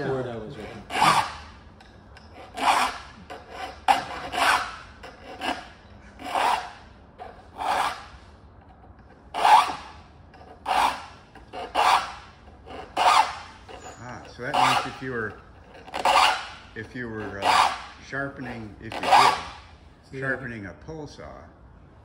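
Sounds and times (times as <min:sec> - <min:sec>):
file rasping on saw teeth: 0:00.6 - 0:01.5, 0:02.2 - 0:08.2, 0:09.3 - 0:19.6.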